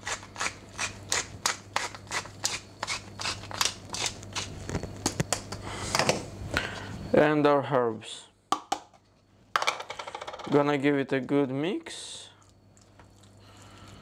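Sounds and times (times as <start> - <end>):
pepper mill grinding: 0.0 - 4.6.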